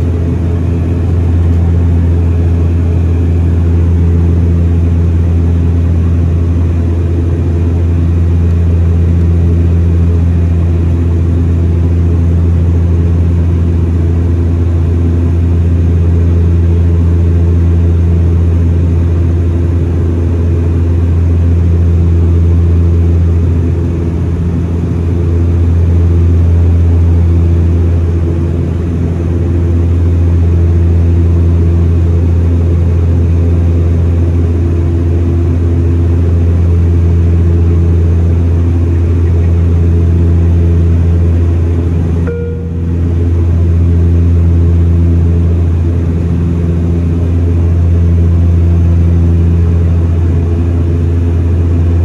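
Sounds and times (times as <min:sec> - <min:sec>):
turboprop engine drone: 0:00.0 - 0:52.0.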